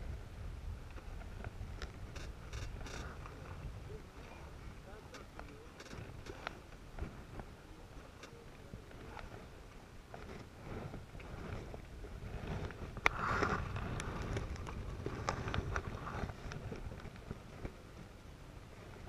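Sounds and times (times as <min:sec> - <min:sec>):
rigging clicks and rattles: 0:00.8 - 0:03.6, 0:04.9 - 0:09.5, 0:10.1 - 0:17.8.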